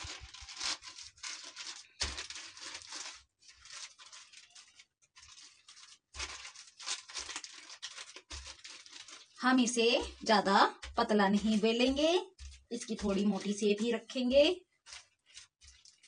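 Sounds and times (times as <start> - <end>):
plastic sheet rustling and crinkling: 0.0 - 16.0
rolling pin rolling dough: 7.8 - 16.0.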